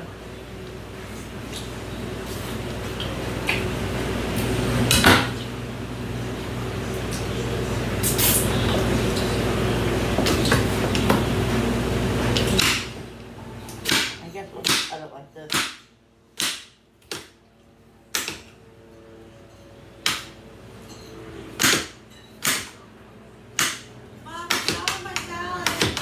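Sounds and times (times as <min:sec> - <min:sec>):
knife chopping on cutting board: 0:13.9 - 0:15.8.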